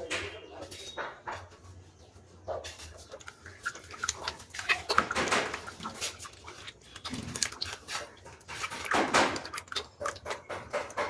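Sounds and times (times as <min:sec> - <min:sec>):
hand squelching thick paint: 0:02.8 - 0:11.0.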